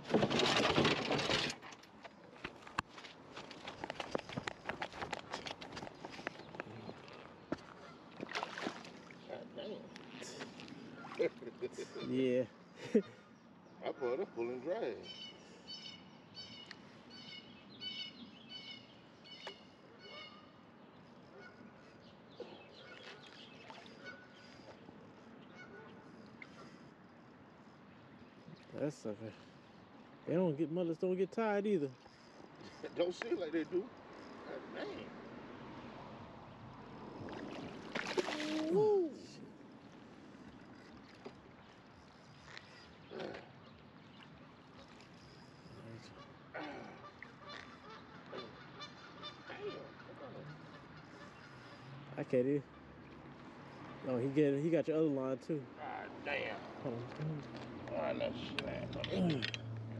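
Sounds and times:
faint bird calls: 5.9 - 8.3, 9.0 - 30.3, 37.1 - 54.2
fish splashing at surface: 8.2 - 9.1, 37.2 - 38.9
man whooping: 38.4 - 39.4.

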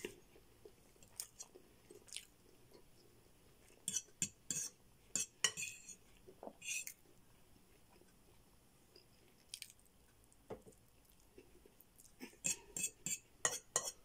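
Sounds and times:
metal fork scraping a bowl: 3.9 - 6.0, 6.6 - 7.0, 12.4 - 14.0.

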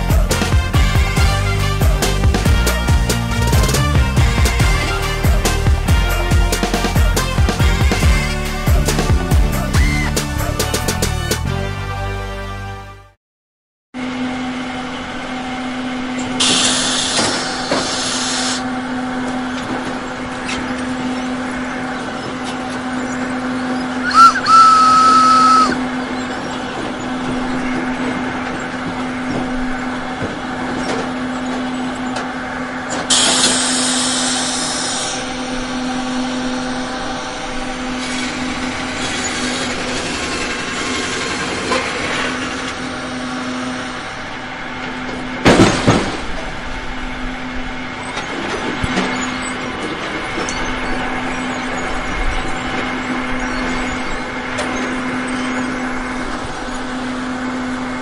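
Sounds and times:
low machine hum: 14.0 - 58.0
hiss: 16.4 - 18.6, 33.1 - 35.2
steam locomotive whistle: 24.0 - 25.9, 33.1 - 35.3
loud wooden clatter: 44.8 - 46.6.

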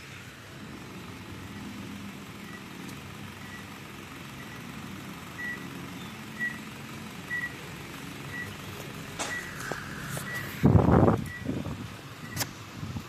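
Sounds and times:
reversing alarm beeping: 4.4 - 4.7, 5.3 - 6.7, 7.3 - 7.6, 8.3 - 8.6, 9.2 - 10.6, 11.2 - 11.5.

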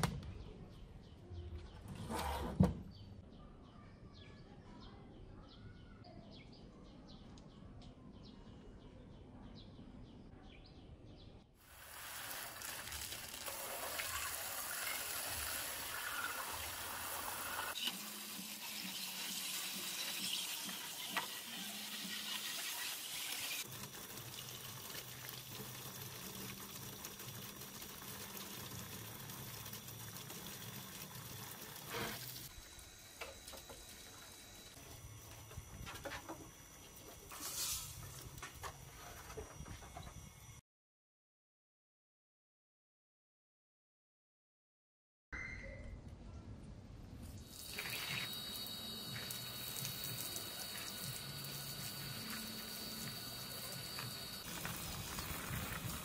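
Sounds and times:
faint bird chirps: 2.9 - 11.4, 45.4 - 46.4
hose spraying onto plastic: 11.7 - 32.5, 37.0 - 38.6, 47.5 - 56.0.

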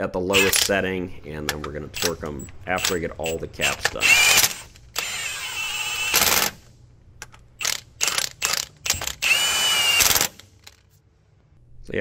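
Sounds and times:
impact wrench bursts: 0.3 - 0.7, 1.9 - 6.6, 7.6 - 10.8.

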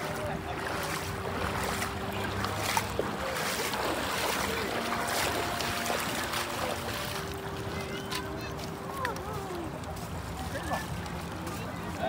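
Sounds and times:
faint distant voices: 0.0 - 12.0
river water splashing around legs: 0.0 - 12.0.

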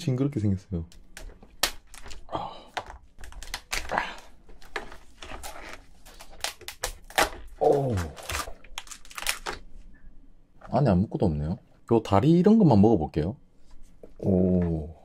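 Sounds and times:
shell cracking and crunching: 0.9 - 9.7
person exclaiming: 7.6 - 8.4.

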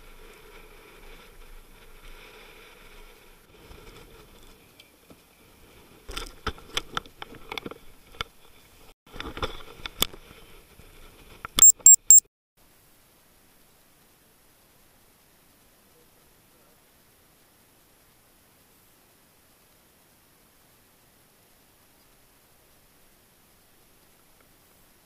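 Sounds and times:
short high beeps: 11.6 - 12.3.

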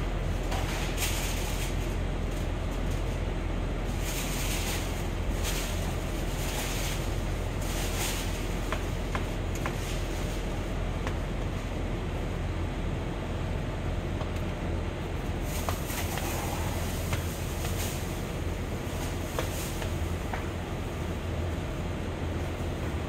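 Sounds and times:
rushing hiss: 15.4 - 20.6.

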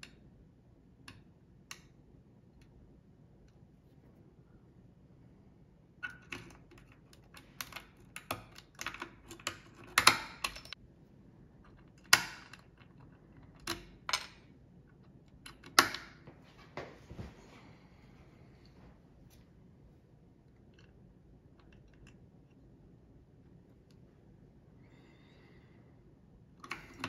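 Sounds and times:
padlocks clicking: 6.0 - 10.8.

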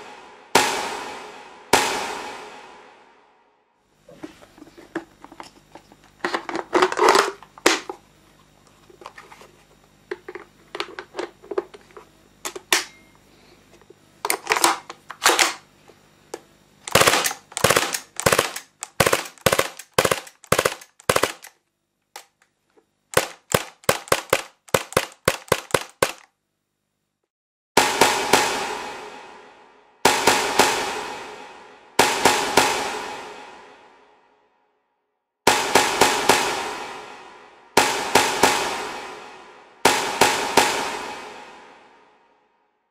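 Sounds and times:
airsoft pistol shots: 16.9 - 21.5, 23.1 - 26.2
airsoft pistol handling clicks: 16.9 - 21.6.

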